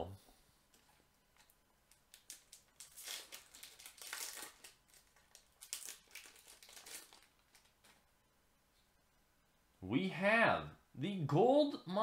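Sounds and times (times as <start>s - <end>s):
foil wrapper crinkling: 1.4s - 8.0s.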